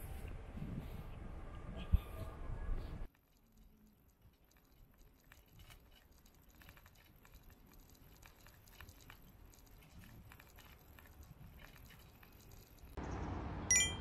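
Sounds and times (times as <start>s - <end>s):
low rumble of rolling bicycle: 0.0s - 13.6s
bicycle ticking and rattling: 3.1s - 13.2s.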